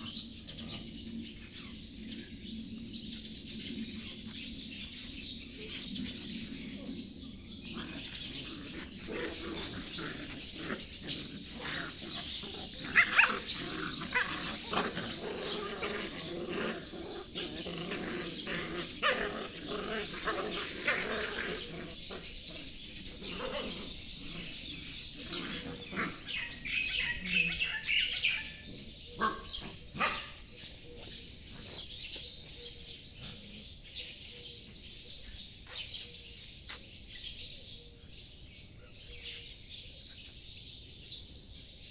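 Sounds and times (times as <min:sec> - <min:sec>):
birds chirping: 0:00.0 - 0:41.9
puppies yipping and barking: 0:07.3 - 0:32.5.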